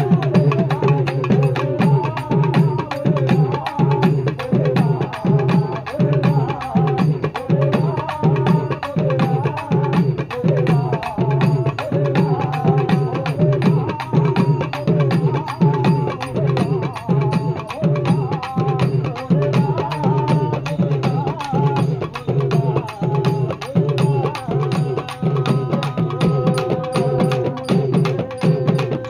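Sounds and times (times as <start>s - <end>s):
hand and stick drums: 0.0s - 29.0s.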